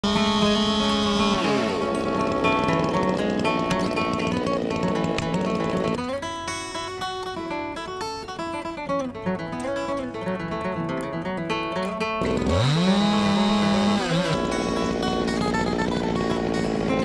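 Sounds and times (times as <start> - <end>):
engine revving: 0.0 - 6.0, 12.2 - 17.0
acoustic guitar melody: 0.0 - 17.0.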